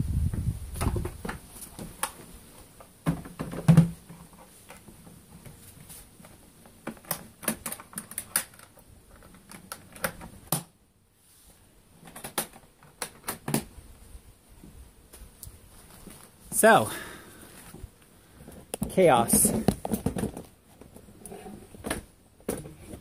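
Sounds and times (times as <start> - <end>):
clicks and knocks of plastic and wood: 0.8 - 5.6, 6.2 - 10.7, 12.0 - 13.7, 18.4 - 23.0
hive roof set onto boxes: 15.1 - 23.0.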